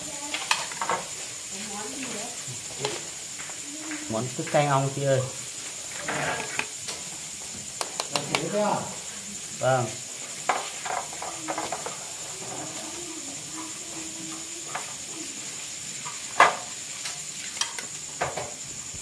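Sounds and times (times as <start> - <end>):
faint sizzle: 0.0 - 19.0
utensil scraping a pan: 5.8 - 6.7, 10.3 - 16.6.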